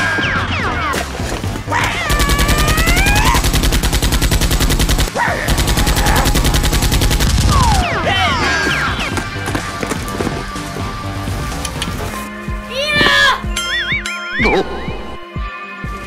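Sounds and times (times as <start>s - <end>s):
automatic gunfire bursts: 2.1s - 7.9s.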